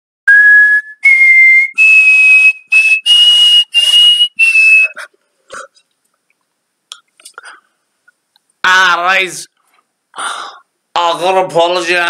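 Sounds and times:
breathy whistle notes: 0.3 - 5.1.

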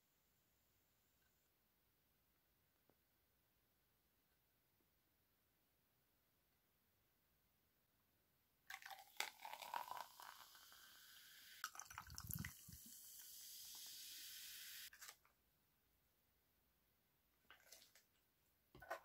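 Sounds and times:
cola pouring into glass: 8.7 - 14.6
fizzing hiss: 9.2 - 14.9.

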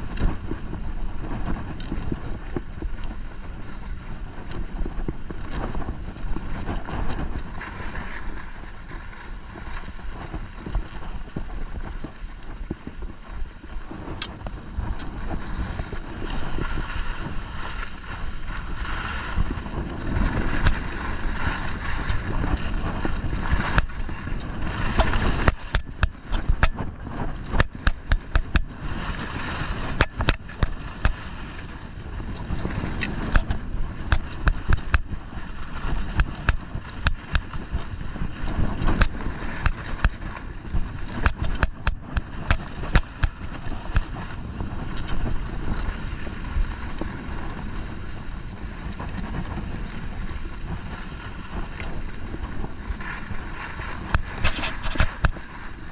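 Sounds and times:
skis sliding over snow: 0.0 - 55.9
wind rushing over microphone: 0.0 - 55.9
sharp clicks and ticks: 18.6 - 28.7, 29.4 - 31.2, 38.5 - 44.1.

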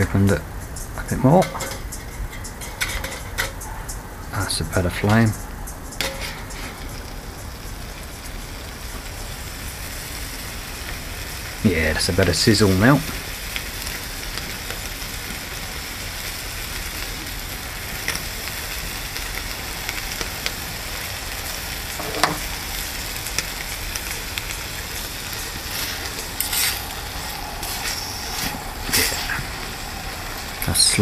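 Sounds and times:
bacon sizzling in a frying pan: 5.7 - 31.0
fork scraping a pan: 6.0 - 7.0, 25.7 - 26.9, 27.6 - 29.5.

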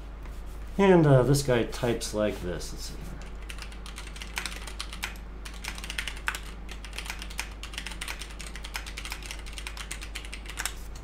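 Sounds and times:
fast typing on mechanical keyboard: 3.3 - 10.8.

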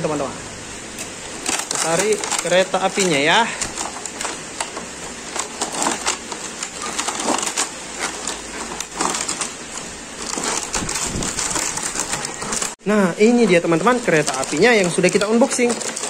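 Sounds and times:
foam scraping against cardboard: 1.3 - 12.8.

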